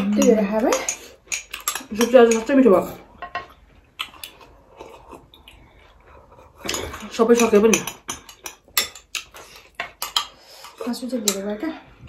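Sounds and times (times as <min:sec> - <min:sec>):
metal spoons clinking on glass bowls: 0:00.0 - 0:03.6, 0:06.7 - 0:11.7.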